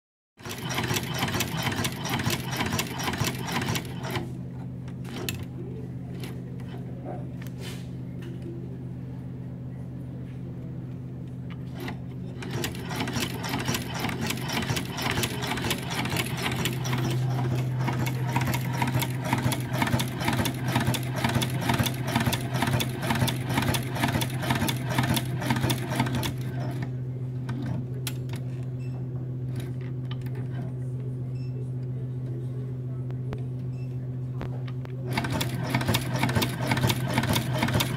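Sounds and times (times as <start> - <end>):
sewing machine rapid clicking: 0.4 - 4.3, 11.8 - 26.8, 35.1 - 37.9
steady low hum: 0.8 - 37.9.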